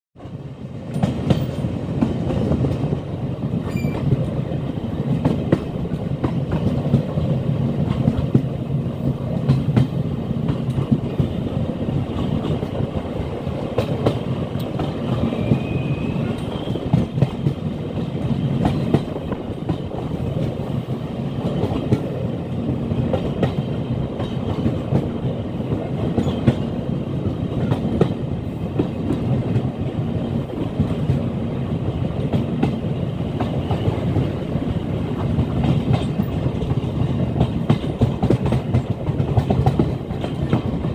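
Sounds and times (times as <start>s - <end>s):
train wheels rumbling on track: 0.2s - 40.9s
wheels clacking over rail joints: 35.1s - 40.9s.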